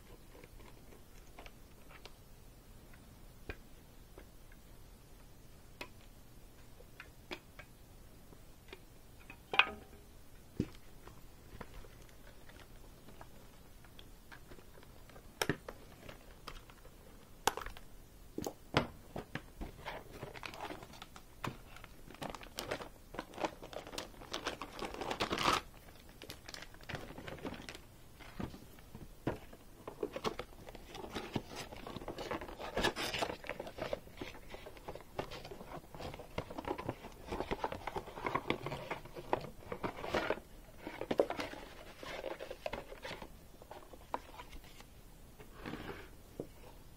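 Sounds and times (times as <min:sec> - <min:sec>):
plastic and cardboard rustling: 0:18.4 - 0:46.8.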